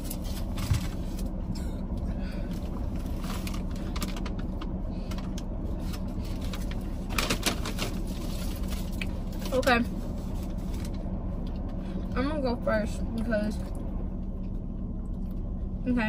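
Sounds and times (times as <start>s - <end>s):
air-conditioning fan: 0.0s - 16.0s
car engine idling: 0.0s - 16.0s
paper wrappers crinkling: 5.8s - 9.6s.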